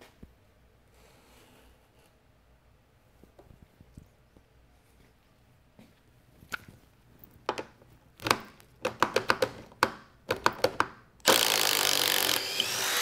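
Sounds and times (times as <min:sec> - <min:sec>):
impact driver drilling into wood: 0:11.2 - 0:13.0.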